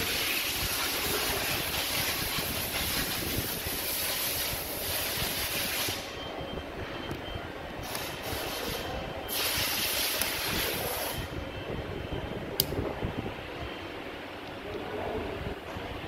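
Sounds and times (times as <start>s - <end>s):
loud hiss: 8.0s - 11.3s
sharp click: 12.6s - 12.8s.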